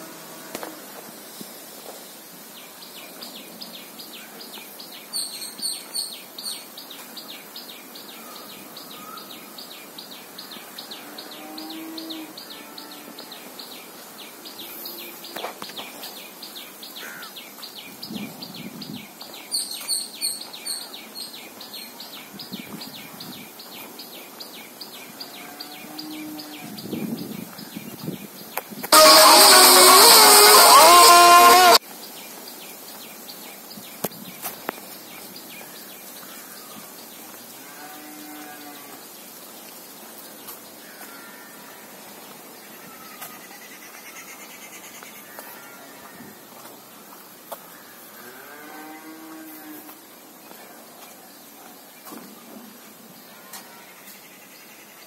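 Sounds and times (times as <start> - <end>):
loud music: 28.9 - 31.8.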